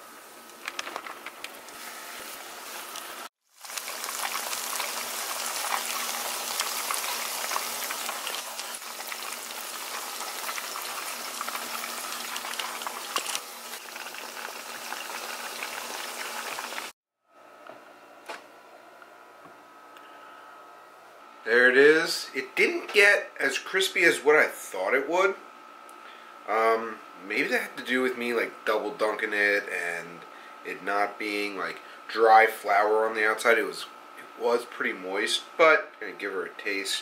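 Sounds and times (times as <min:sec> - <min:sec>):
fish deep-frying in oil: 0:01.4 - 0:17.0.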